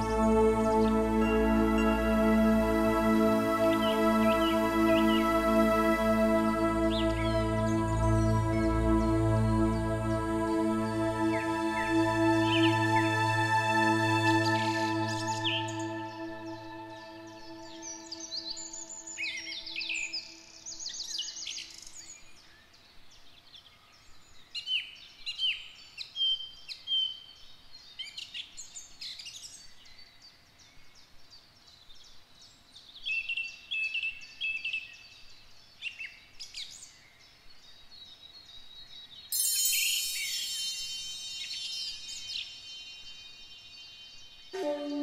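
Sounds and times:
soft steady music: 0.0s - 21.0s, 39.4s - 43.4s, 44.4s - 45.0s
songbirds chirping and trilling: 0.0s - 45.0s
high ringing tones: 39.4s - 43.5s.

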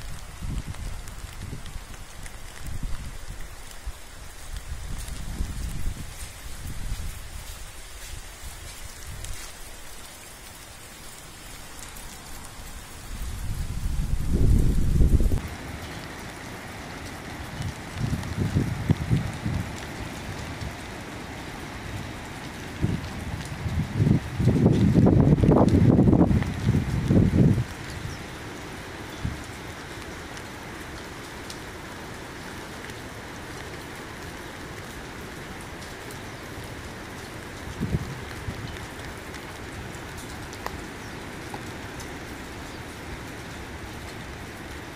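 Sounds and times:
heavy rain hiss: 0.0s - 44.9s.

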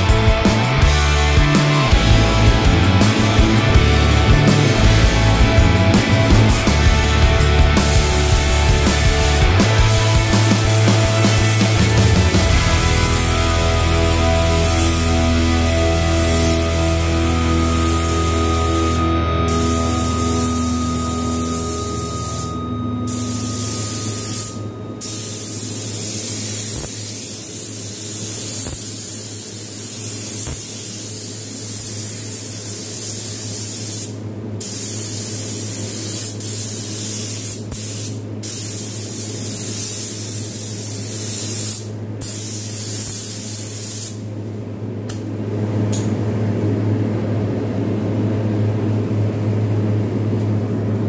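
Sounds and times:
paint spray hissing: 6.3s - 22.5s, 23.3s - 44.3s.

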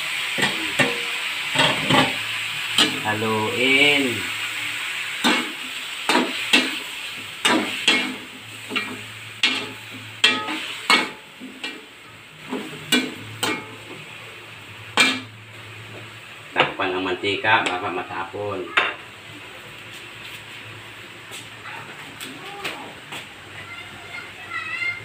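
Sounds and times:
chicken sizzling in oil: 0.0s - 21.6s
metal spatula scraping a wok: 5.2s - 13.8s.

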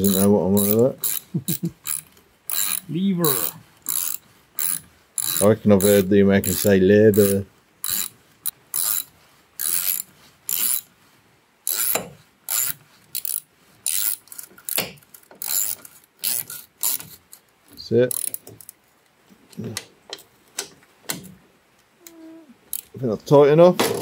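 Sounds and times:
ratchet wrench clicking: 0.0s - 10.9s, 11.7s - 17.2s, 18.1s - 18.4s.

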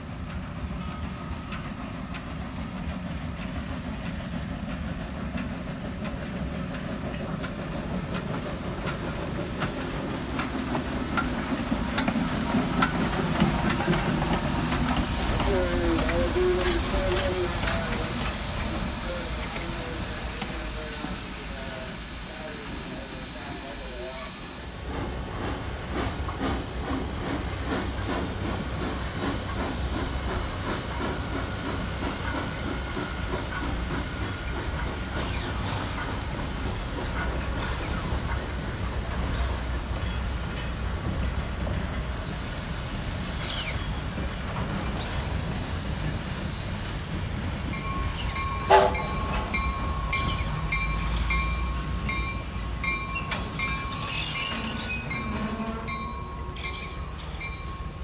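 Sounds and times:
steam locomotive exhaust chuffing: 0.0s - 58.0s
train wheels clickety-clack: 0.0s - 58.0s
thin steady squeal: 47.8s - 58.0s.

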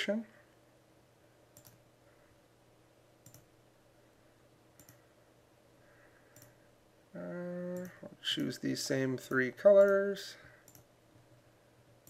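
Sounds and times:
faint room hum: 0.0s - 12.0s
computer mouse clicking: 1.5s - 1.8s, 3.2s - 3.5s, 4.8s - 5.0s, 6.3s - 6.6s, 10.6s - 10.9s.

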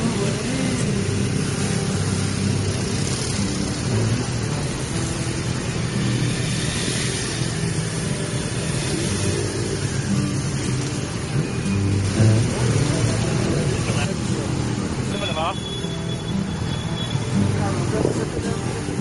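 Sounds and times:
motorcycle engines running: 0.0s - 19.0s
wind noise on microphone: 17.8s - 19.0s.

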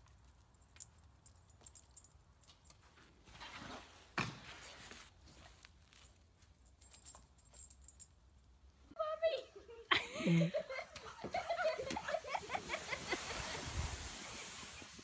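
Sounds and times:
light jingling: 0.0s - 3.3s, 5.3s - 8.9s
dog paws scuffing in snow: 11.4s - 15.0s.

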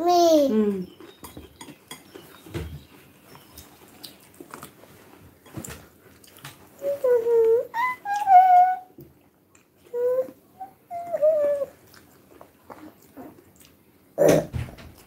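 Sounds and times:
chewing: 0.9s - 6.8s, 9.0s - 9.9s, 11.7s - 13.8s
high-pitched vocal calls: 6.8s - 8.9s.

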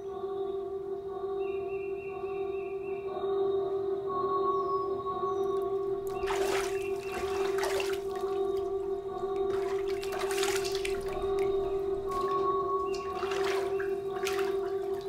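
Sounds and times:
ambient music drone: 0.0s - 15.0s
water sloshing: 6.0s - 15.0s.

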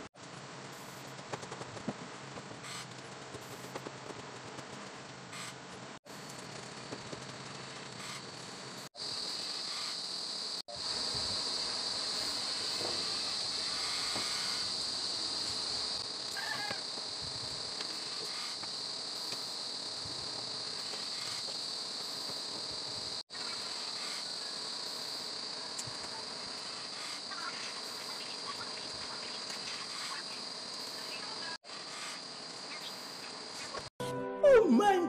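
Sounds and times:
crickets chirping: 6.1s - 33.9s.

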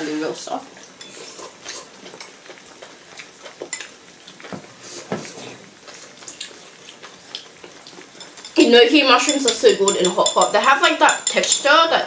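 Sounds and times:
broth stirring: 0.0s - 12.0s
utensils clinking against bowls: 0.9s - 2.3s, 7.3s - 12.0s.

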